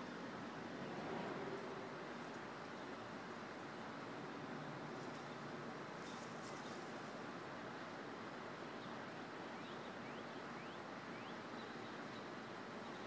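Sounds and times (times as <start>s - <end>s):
outdoor background hiss: 0.0s - 13.0s
faint rustle: 4.8s - 7.4s.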